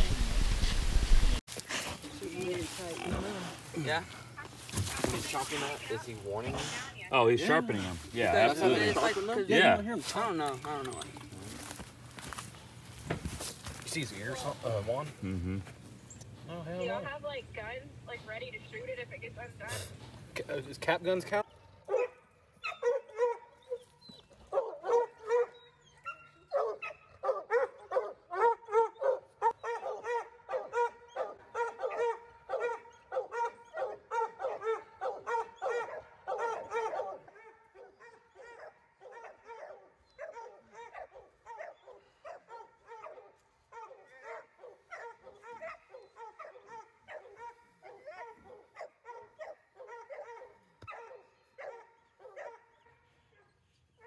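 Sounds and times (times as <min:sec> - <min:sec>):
dogs barking rapidly: 0:21.8 - 0:23.8, 0:24.5 - 0:53.0.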